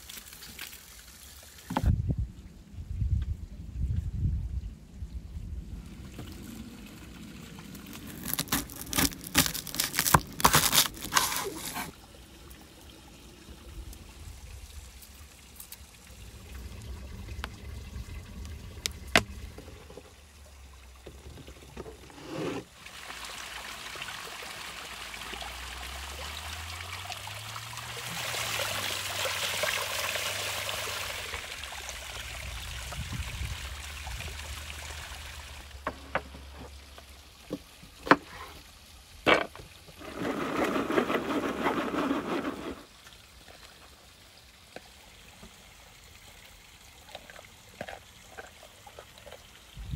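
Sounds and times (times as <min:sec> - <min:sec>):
water running from spout: 0:05.8 - 0:38.7
garlic skin crackling: 0:07.9 - 0:11.9.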